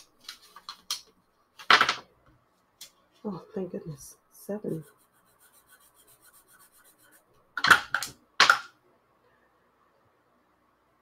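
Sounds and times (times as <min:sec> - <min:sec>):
marker scratching on paper: 0:04.6 - 0:07.3.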